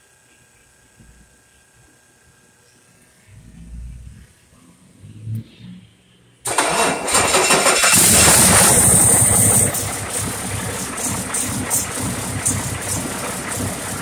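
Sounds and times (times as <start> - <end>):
diesel engine starting and idling: 6.4 - 14.0.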